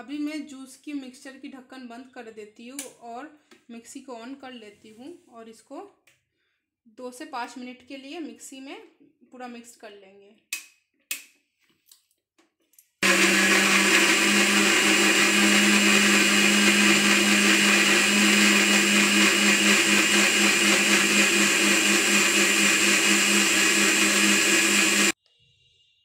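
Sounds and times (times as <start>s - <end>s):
mixer grinder motor running: 13.0s - 25.2s.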